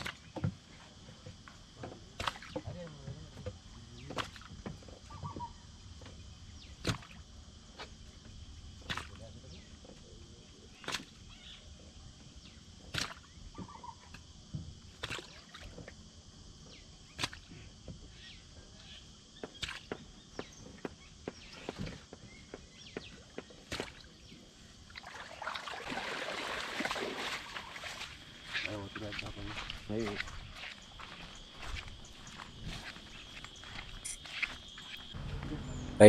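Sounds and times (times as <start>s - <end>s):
feet wading through shallow water: 24.7s - 35.2s.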